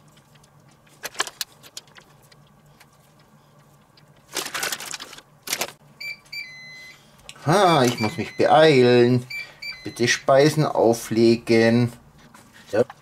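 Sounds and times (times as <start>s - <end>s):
plastic packaging crinkling: 4.2s - 5.8s
electronic beeps: 9.3s - 10.1s.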